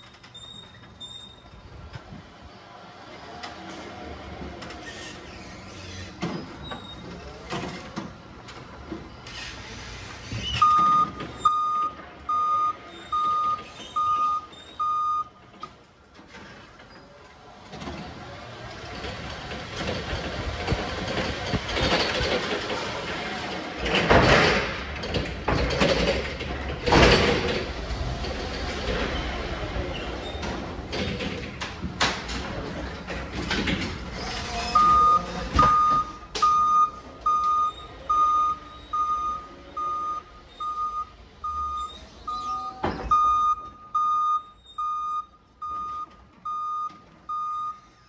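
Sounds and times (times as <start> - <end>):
forklift driving rumble and rattle: 0.0 - 48.0
forklift reversing alarm beeping: 10.5 - 15.4, 34.8 - 48.0.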